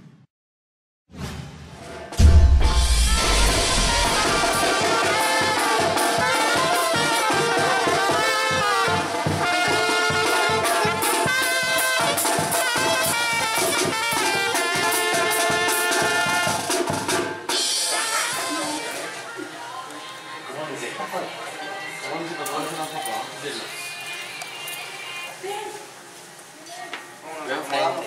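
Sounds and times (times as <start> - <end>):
bass drum and cymbal beat: 2.2 - 18.6
trumpets playing melody: 2.7 - 16.8.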